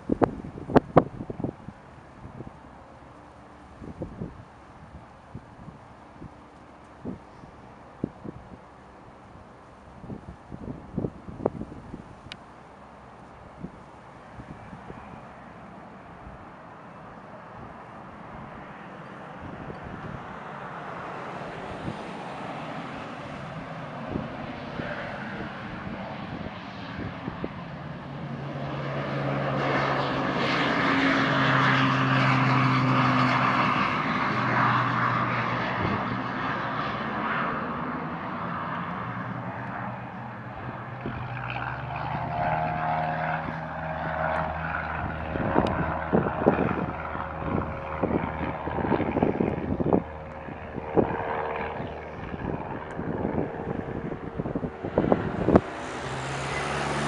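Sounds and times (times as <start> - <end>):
wind thumps on microphone: 0.0 - 1.6, 44.2 - 55.8
turboprop plane taking off: 0.0 - 57.0.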